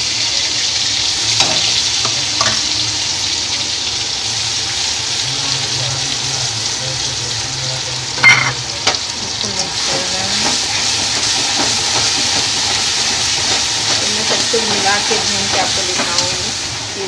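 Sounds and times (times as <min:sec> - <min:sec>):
paste sizzling in hot oil: 0:00.0 - 0:17.0
spatula clacking against pan: 0:10.3 - 0:16.3.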